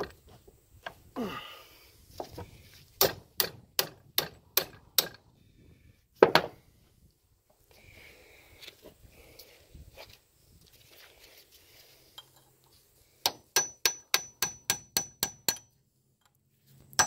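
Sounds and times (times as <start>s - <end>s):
sharp metal knocks: 3.0s - 5.2s, 13.2s - 15.8s.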